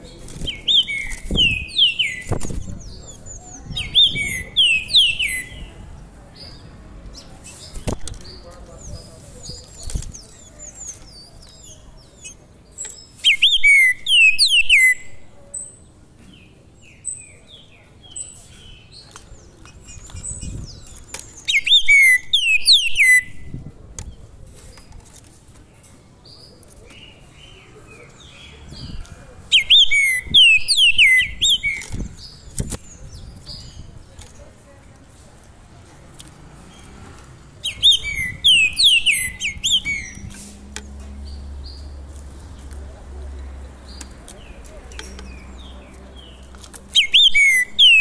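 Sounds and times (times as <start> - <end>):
songbird whistled song: 0.2 - 5.8, 8.8 - 23.6, 29.5 - 33.9, 37.6 - 42.0, 43.9 - 48.0
soft bird chirps: 6.4 - 34.6.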